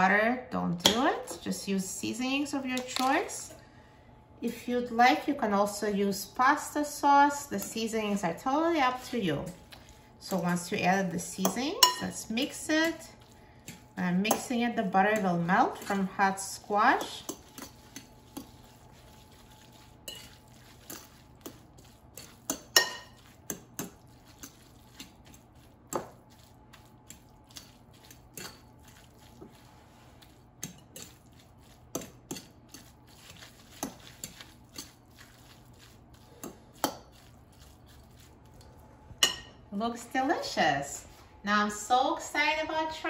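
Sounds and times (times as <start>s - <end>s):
metal fork clinking on glass bowl: 11.8s - 12.2s, 20.1s - 20.4s, 22.2s - 24.6s.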